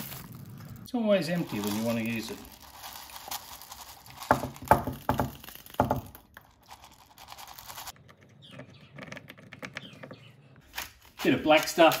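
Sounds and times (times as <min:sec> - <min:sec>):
peppercorns rattling into a mill: 0:00.0 - 0:08.0.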